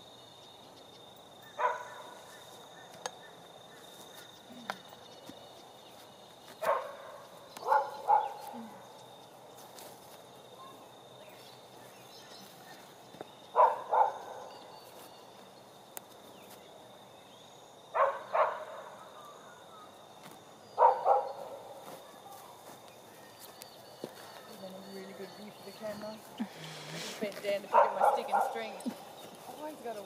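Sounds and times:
dog barking: 1.6 - 2.2, 6.6 - 8.5, 13.6 - 14.5, 18.0 - 18.9, 20.8 - 21.7, 27.7 - 28.8.

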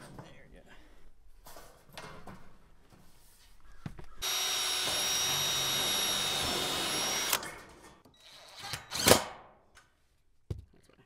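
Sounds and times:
cordless drill driving into metal: 4.2 - 7.6.

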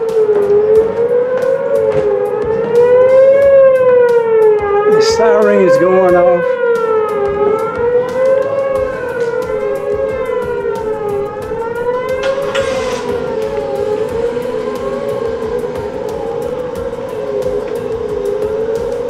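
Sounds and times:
warning sirens wailing: 0.0 - 19.0
rush of noise: 8.4 - 19.0.

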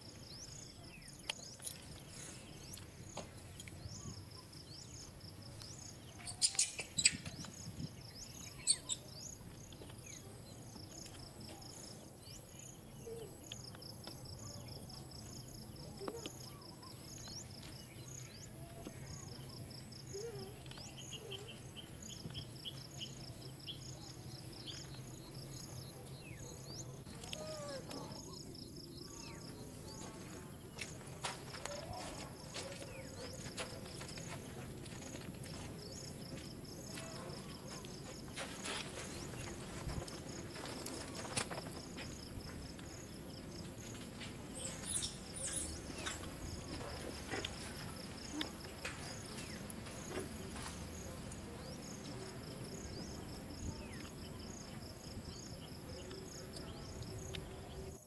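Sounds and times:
faint high chirp: 3.5 - 13.8.

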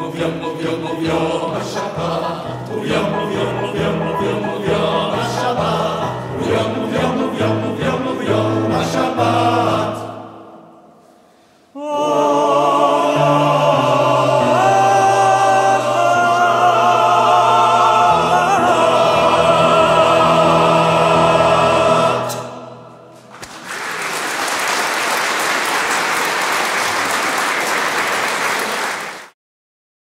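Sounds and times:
men's choir singing: 0.0 - 10.9, 11.8 - 23.1.

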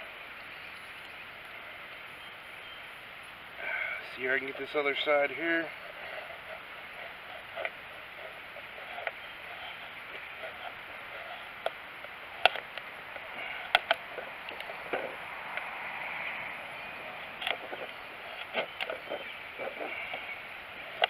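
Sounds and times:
knife shaving wood: 5.7 - 14.0.

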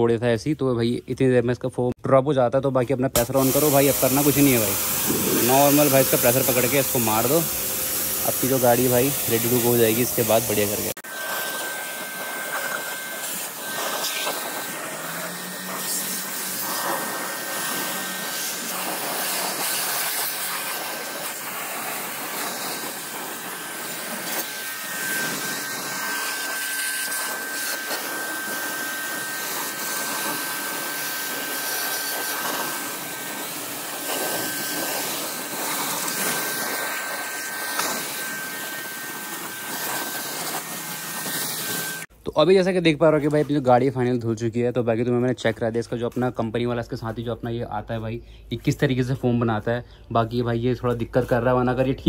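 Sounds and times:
pressure washer spray hiss: 3.2 - 42.1
thin high whine: 3.2 - 42.1.

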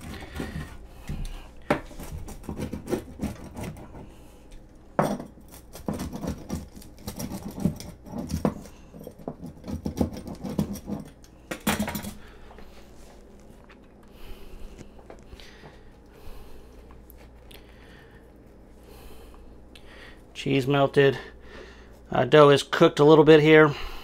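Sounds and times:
pizza cutter cutting pizza: 0.0 - 1.1, 1.7 - 4.2, 5.4 - 11.1.

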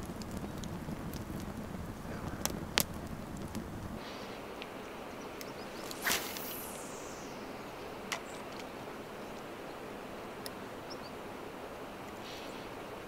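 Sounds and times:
campfire crackling and popping: 0.0 - 13.0
low wind rumble: 0.0 - 13.0
brief swish: 5.8 - 7.4.

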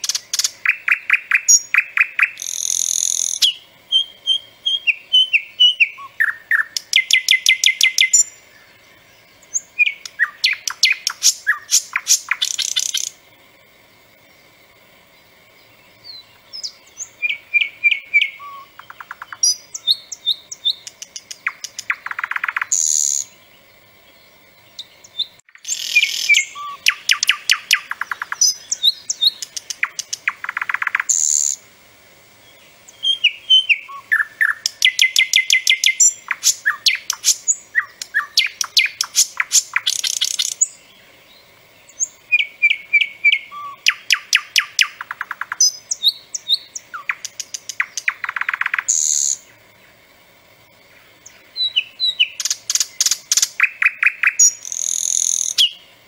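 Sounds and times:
nightingale singing: 0.0 - 31.7, 32.4 - 56.0.

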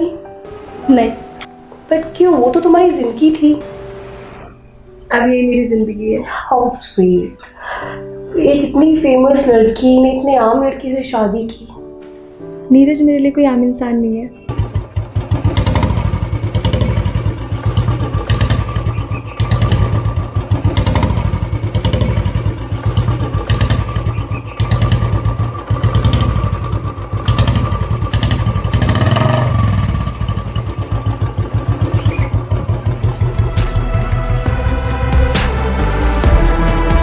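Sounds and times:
motorcycle engine thumping: 14.5 - 33.0.

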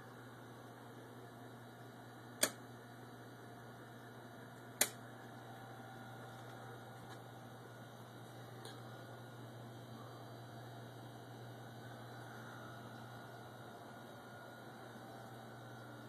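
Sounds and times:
low electrical hum: 0.0 - 16.0
sharp clicks: 2.4 - 2.6.

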